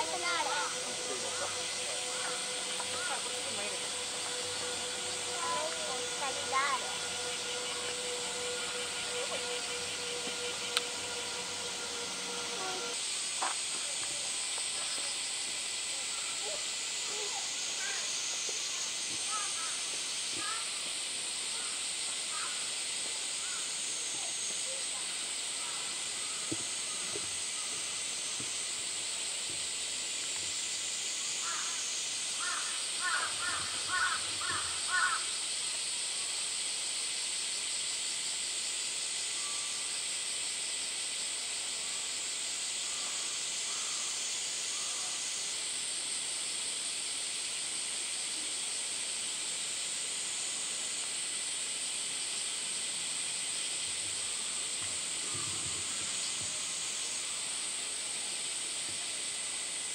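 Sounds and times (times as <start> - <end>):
bird calling: 0.0 - 13.0
steady high hiss: 0.0 - 59.9.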